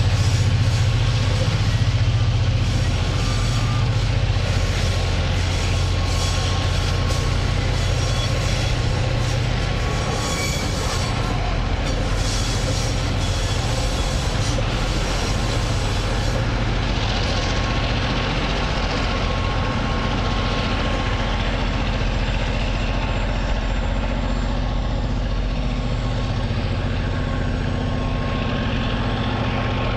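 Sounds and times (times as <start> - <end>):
vehicle engine idling: 15.6 - 29.9.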